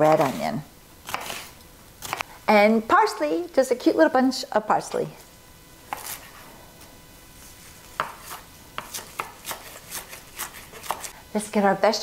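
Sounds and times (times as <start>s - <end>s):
knife chopping on wooden board: 1.1s - 2.3s, 5.9s - 6.3s, 7.9s - 11.1s.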